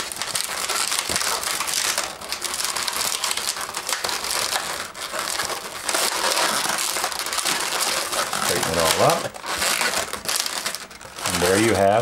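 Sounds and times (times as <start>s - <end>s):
balloons rubbing and crinkling: 0.0s - 12.0s.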